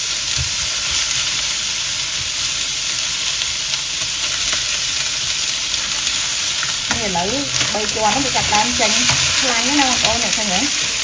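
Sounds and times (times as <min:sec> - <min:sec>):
meat sizzling in a wok: 0:00.0 - 0:11.0
spatula scraping a pan: 0:05.8 - 0:11.0.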